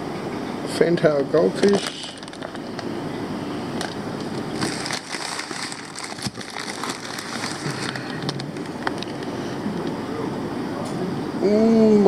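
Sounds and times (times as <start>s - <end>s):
plastic bags crinkling: 1.6s - 2.9s, 3.8s - 9.3s.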